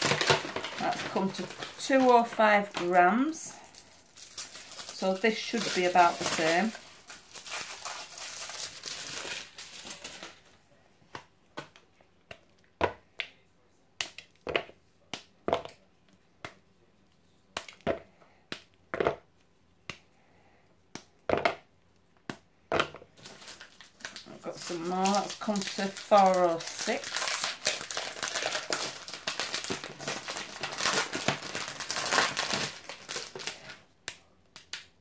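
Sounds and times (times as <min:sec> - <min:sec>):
foil wrapper crinkling: 0:00.0 - 0:10.5, 0:23.2 - 0:33.8
chocolate bar snapping: 0:14.0 - 0:15.8, 0:20.9 - 0:21.6, 0:26.9 - 0:35.0.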